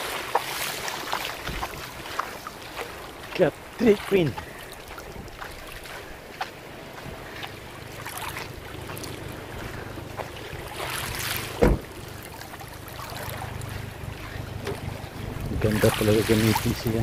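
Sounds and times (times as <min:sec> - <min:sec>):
small waves washing on shore: 0:00.0 - 0:17.0
wind buffeting microphone: 0:01.3 - 0:17.0
loud thump: 0:11.6 - 0:11.9.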